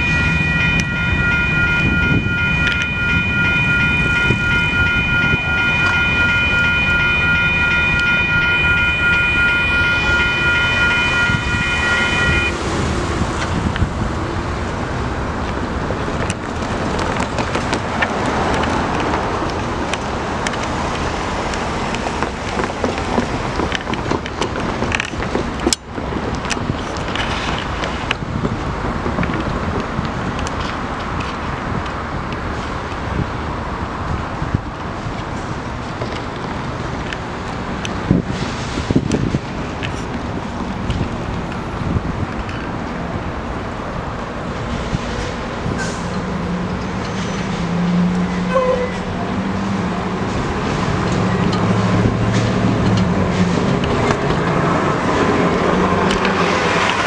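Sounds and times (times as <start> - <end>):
locomotive engine droning: 0.0 - 57.0
train rumbling on rails: 0.0 - 57.0
wind buffeting microphone: 10.8 - 46.8.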